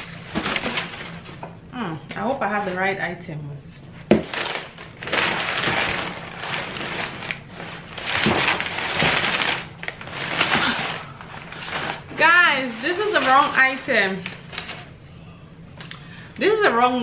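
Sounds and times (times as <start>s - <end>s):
packing paper crinkling: 0.0s - 1.4s, 4.2s - 14.9s.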